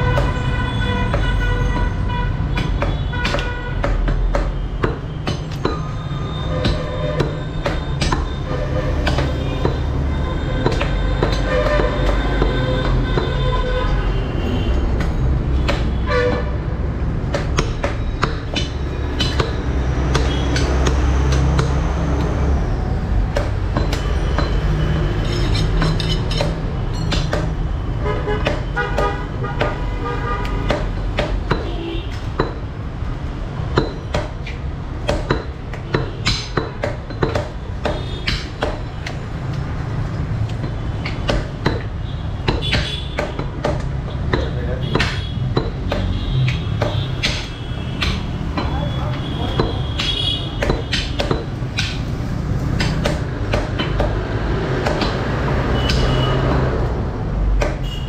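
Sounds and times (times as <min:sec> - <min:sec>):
cleavers chopping meat on wood: 0:00.0 - 0:13.6, 0:14.8 - 0:58.0
vehicle horns tooting: 0:00.0 - 0:16.9, 0:20.1 - 0:21.5, 0:27.9 - 0:32.3, 0:42.0 - 0:51.2, 0:55.6 - 0:56.8, 0:57.6 - 0:58.0
street traffic rumble: 0:00.0 - 0:58.0.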